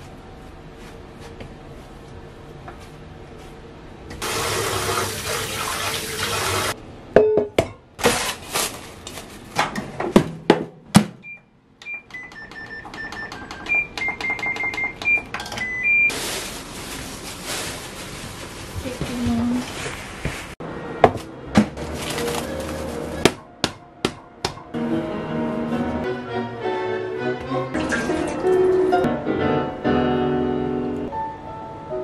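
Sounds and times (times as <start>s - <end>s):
microwave control panel beeps: 11.2s - 16.1s.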